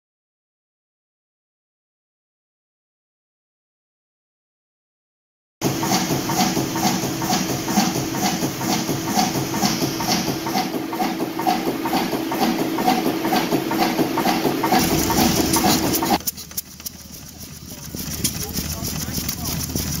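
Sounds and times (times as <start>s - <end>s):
diesel engine beating: 5.6s - 20.0s.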